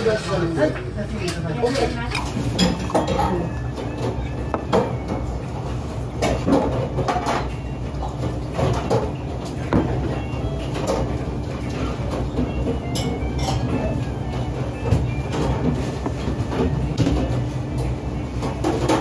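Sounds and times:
dishes clinking: 0:01.2 - 0:05.1, 0:12.1 - 0:14.0.

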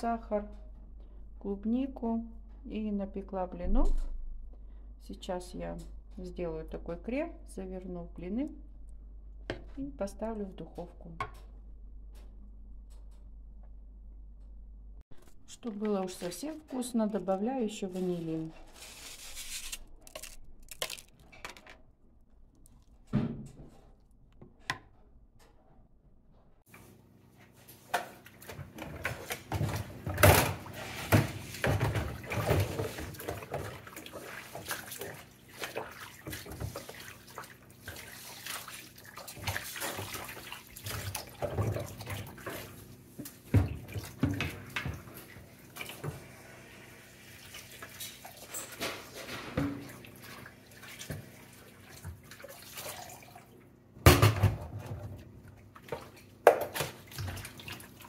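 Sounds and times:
water running in a sink: 0:28.1 - 0:53.6.

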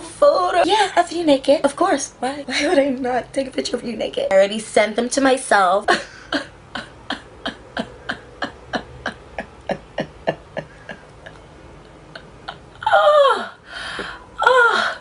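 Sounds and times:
woman laughing: 0:05.9 - 0:13.5.

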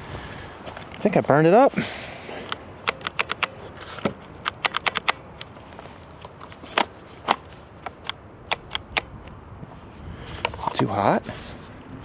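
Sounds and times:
sharp plastic trigger clicks: 0:02.5 - 0:05.5, 0:08.0 - 0:09.1.

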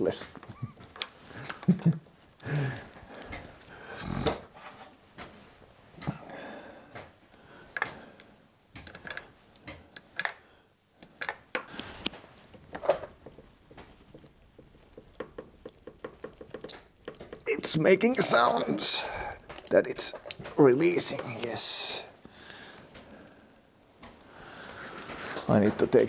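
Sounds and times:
socket wrench clicking and scraping: 0:08.8 - 0:10.4.

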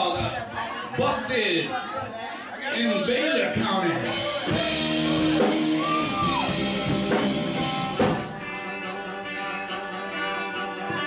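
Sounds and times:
country-rock band playing: 0:02.7 - 0:11.0.

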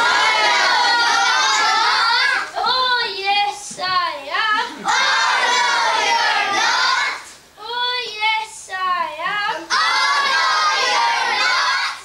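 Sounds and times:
group of children singing: 0:00.0 - 0:02.6, 0:04.7 - 0:07.3, 0:09.5 - 0:12.0.

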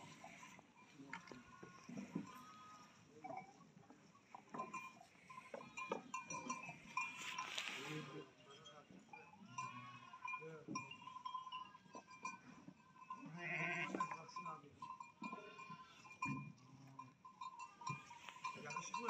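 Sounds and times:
animals bleating: 0:00.0 - 0:03.5, 0:04.8 - 0:12.0, 0:12.8 - 0:14.2, 0:15.0 - 0:16.3, 0:17.4 - 0:19.0.

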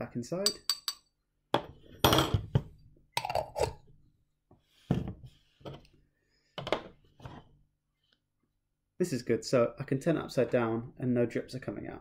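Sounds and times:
metal teaspoon clinking: 0:00.4 - 0:01.1.

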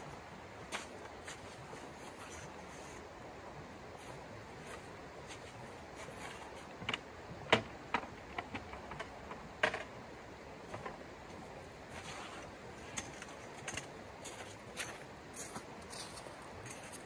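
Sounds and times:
stream rushing: 0:00.0 - 0:07.9.

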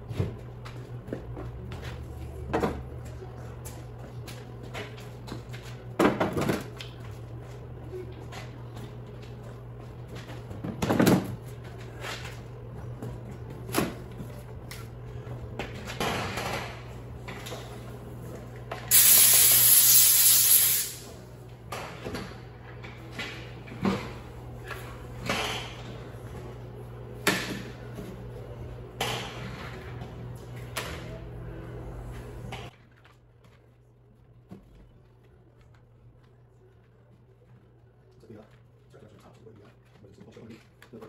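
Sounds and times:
steady low hum: 0:00.0 - 0:18.9, 0:21.0 - 0:41.0
compressed air blow gun hiss: 0:18.9 - 0:21.1.

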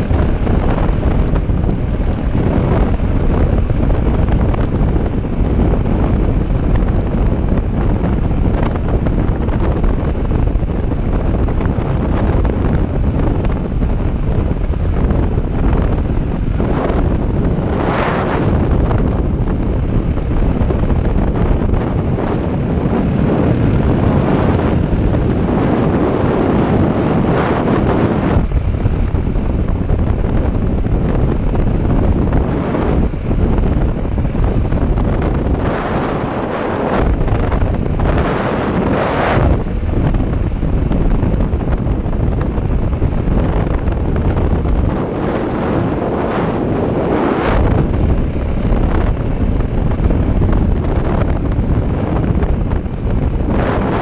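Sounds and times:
vehicle running: 0:00.0 - 0:54.0
wind buffeting microphone: 0:00.0 - 0:54.0.

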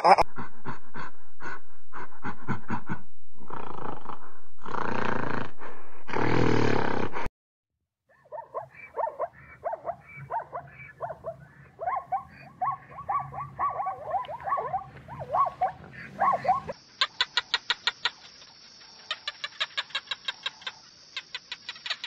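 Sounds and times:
low rumble: 0:00.3 - 0:04.7
zebras barking yelps: 0:08.1 - 0:16.8
high clicking chirps: 0:08.6 - 0:22.0.

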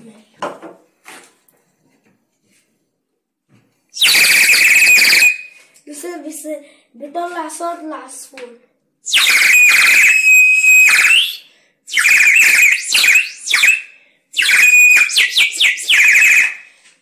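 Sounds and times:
water bird whistle trilling: 0:04.0 - 0:05.5.

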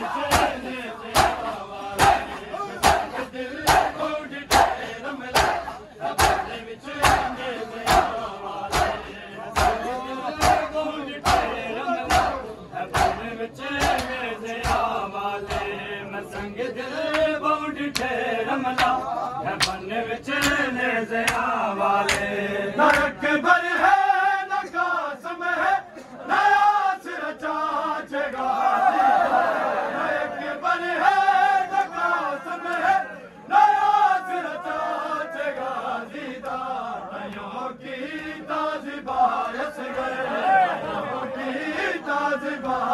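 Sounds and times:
men chanting in unison: 0:00.0 - 0:42.9
chest-beating slaps: 0:00.2 - 0:00.6, 0:04.5 - 0:04.7, 0:07.9 - 0:09.0, 0:09.6 - 0:12.4, 0:13.8 - 0:14.9.

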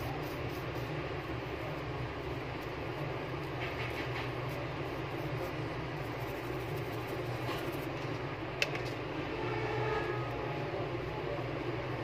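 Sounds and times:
machinery hum with hiss: 0:00.0 - 0:12.0.

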